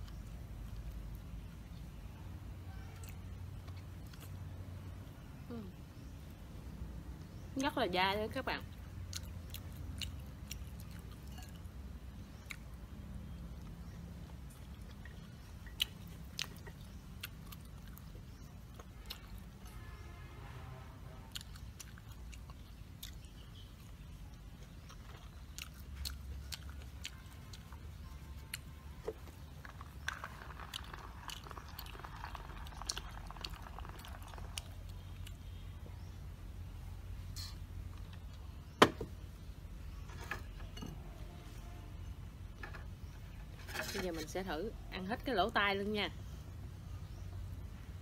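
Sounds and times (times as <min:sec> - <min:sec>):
chewing meat: 0:08.6 - 0:20.0, 0:21.2 - 0:36.2.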